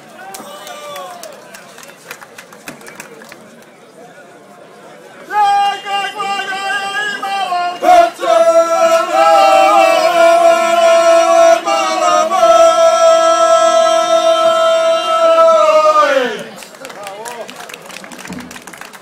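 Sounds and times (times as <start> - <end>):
group singing unaccompanied: 5.3 - 16.5.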